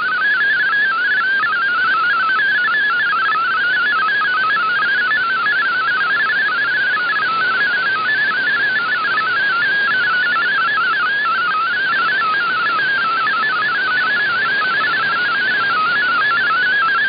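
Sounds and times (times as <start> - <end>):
warbling digital data tone: 0.0 - 17.0
radio static hiss: 6.3 - 17.0.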